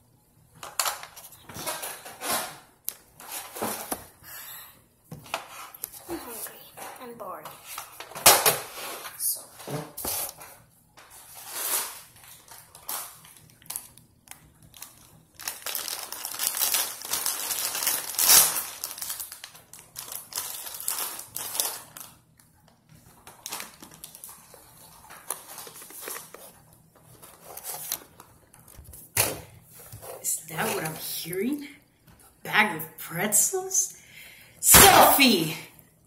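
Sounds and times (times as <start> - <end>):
plastic bag crinkling: 11.4 - 22.4, 23.0 - 29.1.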